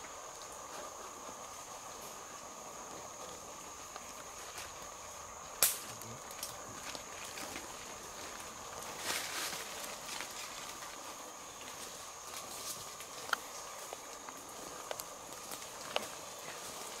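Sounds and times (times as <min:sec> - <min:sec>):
twig snapping: 0:05.6 - 0:06.6
footsteps rustling through leaves: 0:06.7 - 0:14.3.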